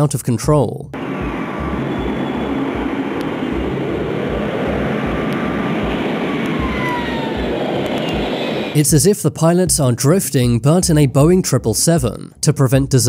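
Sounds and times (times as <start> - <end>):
jet engines roaring: 1.0 - 8.8
faint high whine: 1.0 - 8.9.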